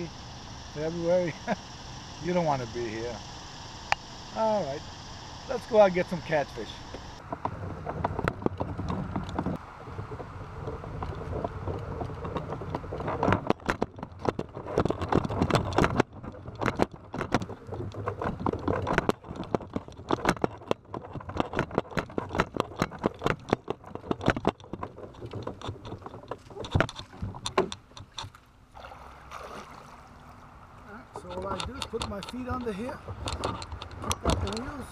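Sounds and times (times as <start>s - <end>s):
cart rolling rumble: 5.5s - 28.3s, 30.3s - 34.9s
kayak and gear rattling: 5.5s - 34.9s.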